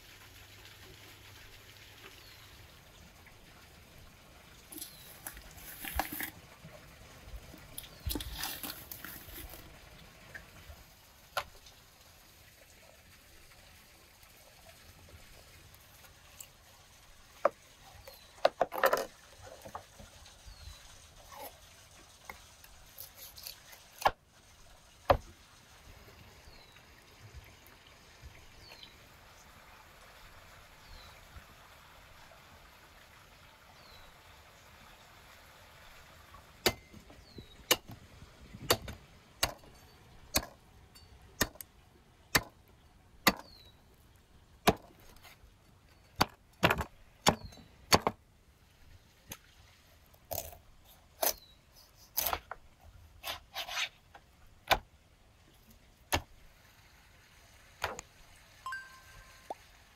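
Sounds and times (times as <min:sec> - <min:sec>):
cleaver chopping on wooden board: 0:38.6 - 0:39.6, 0:43.3 - 0:43.5, 0:44.7 - 0:44.9, 0:46.2 - 0:48.2.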